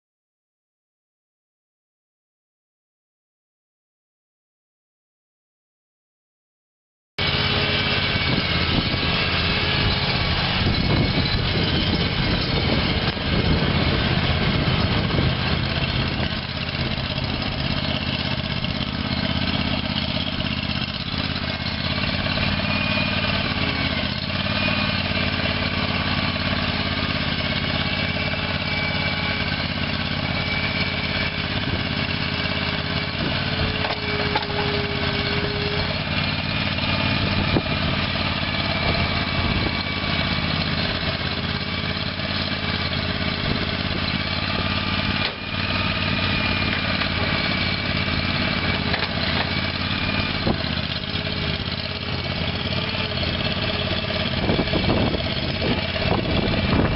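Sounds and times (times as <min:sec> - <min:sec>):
mini skid steer engine running: 0:07.2 - 0:56.9.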